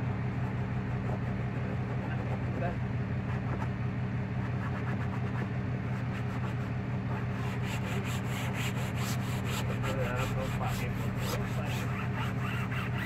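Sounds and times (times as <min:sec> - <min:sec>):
steady low hum: 0:00.0 - 0:13.0
cloth scrubbing fabric: 0:04.6 - 0:13.0.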